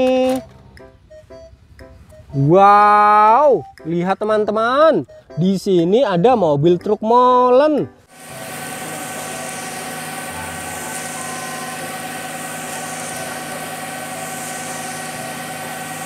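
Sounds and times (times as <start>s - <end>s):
diesel engine running: 8.1s - 16.0s
concrete discharging down chute: 8.2s - 16.0s.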